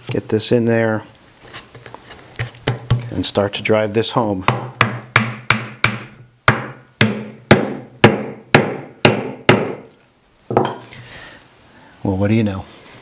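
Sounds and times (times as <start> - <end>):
sharp strikes on wood: 4.4 - 9.9.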